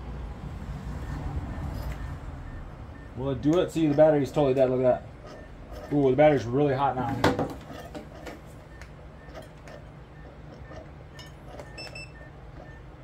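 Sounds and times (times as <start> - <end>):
low steady hum: 0.0 - 13.0
faint short beep: 10.2 - 12.9.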